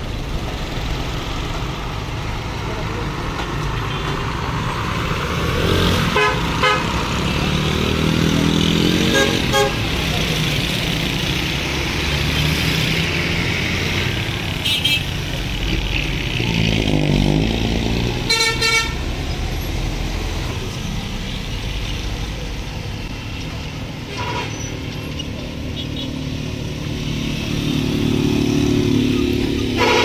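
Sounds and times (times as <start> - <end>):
road traffic engines: 0.0 - 30.0
vehicle passing by: 4.4 - 14.6, 15.2 - 18.3, 26.3 - 29.8
vehicle horn toots: 6.1 - 6.9, 9.0 - 9.8, 18.3 - 19.0, 29.8 - 30.0.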